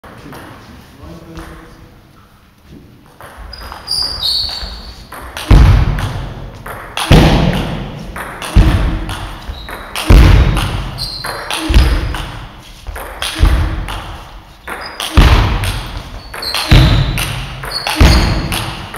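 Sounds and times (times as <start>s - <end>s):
short high squeaks: 3.5s - 5.1s, 11.0s - 12.0s, 16.1s - 18.6s
table tennis ball thuds: 4.5s - 18.9s.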